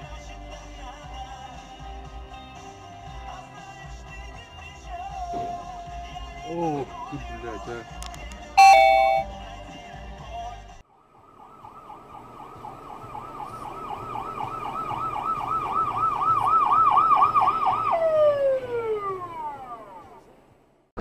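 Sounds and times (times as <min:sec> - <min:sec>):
background music: 0:00.0 - 0:10.8
ambulance siren wailing: 0:08.6 - 0:09.3, 0:11.1 - 0:20.2
loud ringing tone: 0:08.6 - 0:09.3.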